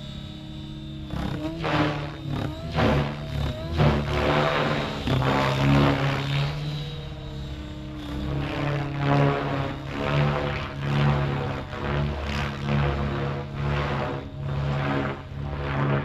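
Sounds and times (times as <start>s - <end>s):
helicopter rotor drone: 0.0s - 16.0s
motor whine: 0.0s - 16.0s.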